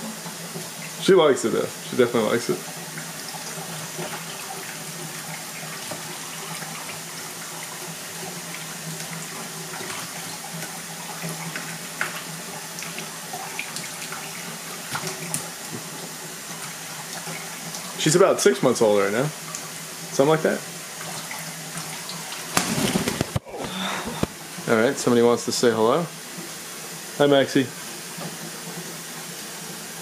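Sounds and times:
water trickling into tub: 0.1s - 22.6s.

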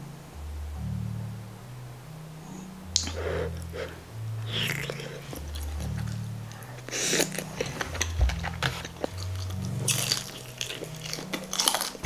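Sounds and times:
crunching and chewing fried food: 4.4s - 12.0s.

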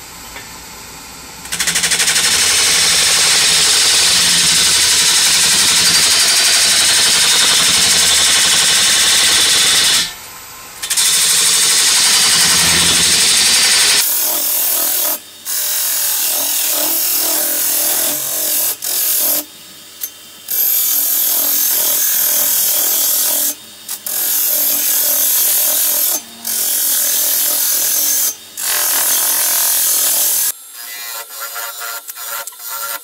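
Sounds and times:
lathe tool scraping wood: 10.8s - 19.5s.

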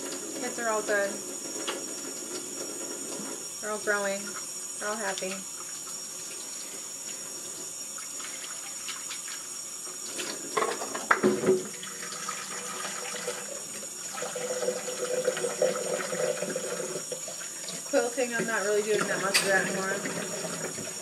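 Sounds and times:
tap running into sink: 10.2s - 21.0s.

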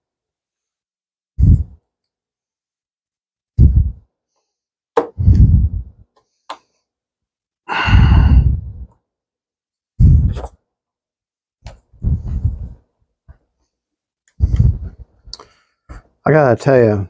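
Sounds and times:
man exhaling heavily: 7.7s - 8.8s.

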